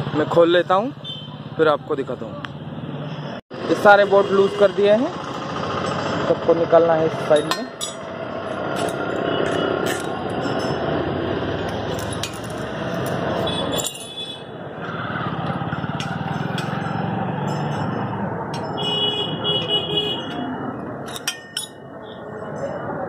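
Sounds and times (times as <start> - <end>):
street traffic: 0.0 - 23.0
vehicle horn: 1.0 - 1.4, 18.8 - 20.4.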